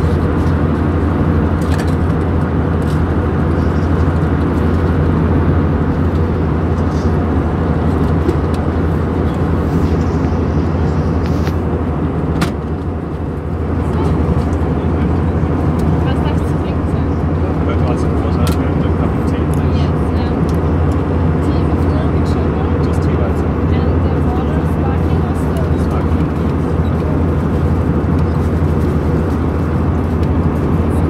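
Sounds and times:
jet engine drone: 0.0 - 31.0
rushing airflow: 4.2 - 17.7.

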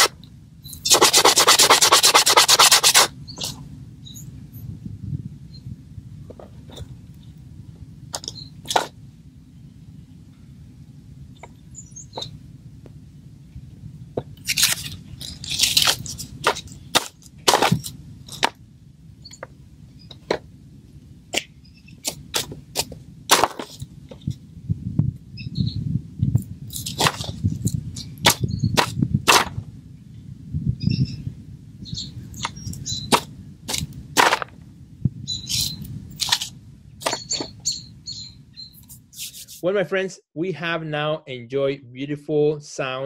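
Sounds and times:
low steady rumble: 0.0 - 42.6
dried leaves crackling: 14.4 - 17.8.

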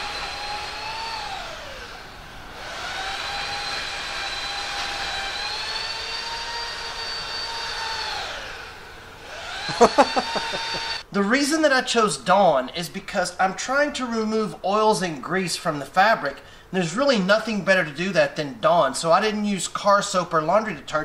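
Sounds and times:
power tool whining: 0.0 - 11.0.

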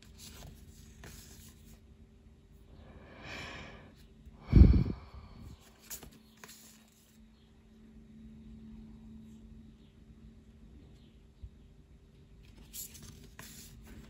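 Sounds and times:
person breathing: 2.7 - 6.0.

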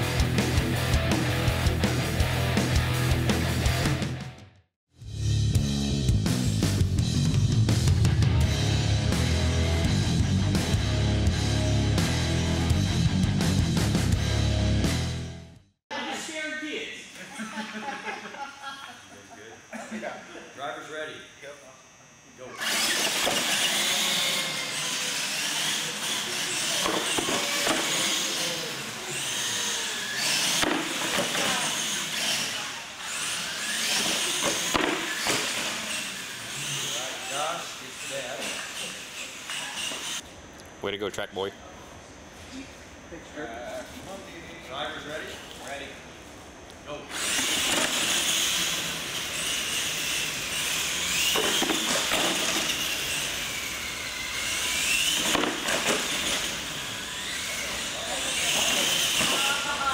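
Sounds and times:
toy truck motor whine: 20.5 - 40.3, 47.1 - 59.9.

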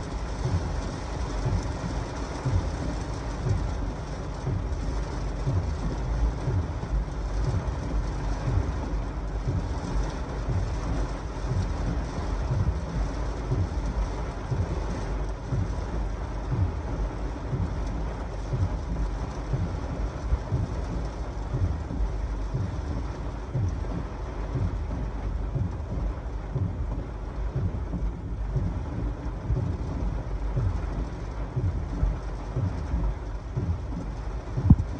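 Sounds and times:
heavy rain on car roof: 0.0 - 34.9
low thud: 18.5 - 34.9.

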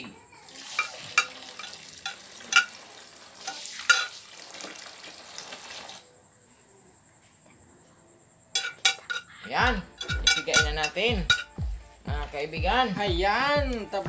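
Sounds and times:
water pouring into plastic basin: 0.4 - 6.0.

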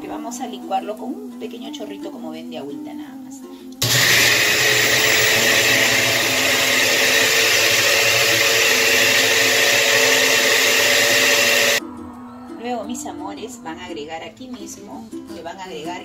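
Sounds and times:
blender motor running: 3.8 - 11.8.

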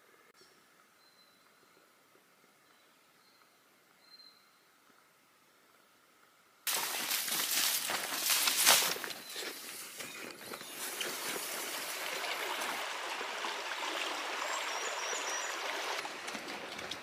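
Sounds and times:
rustles: 5.7 - 12.0
river flowing over stones: 6.7 - 9.0, 10.8 - 17.0.

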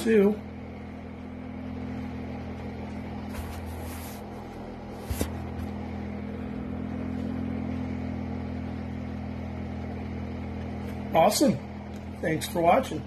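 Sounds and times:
cooling fan humming: 0.0 - 13.0
hand rustling: 3.2 - 5.6.

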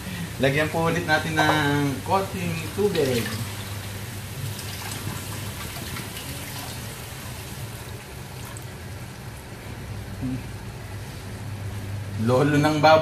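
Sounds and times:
water trickling into wok: 2.6 - 9.4.

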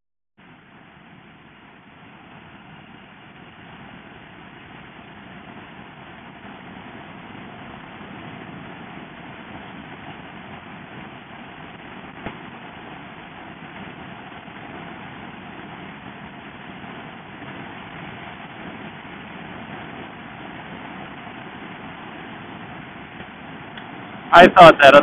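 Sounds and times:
wind and road noise at speed: 0.4 - 24.9.

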